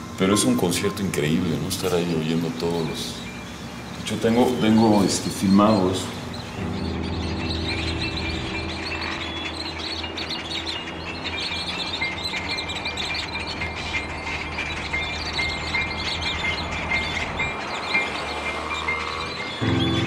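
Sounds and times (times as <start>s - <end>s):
flock of birds chirping and whistling: 0.0s - 20.0s.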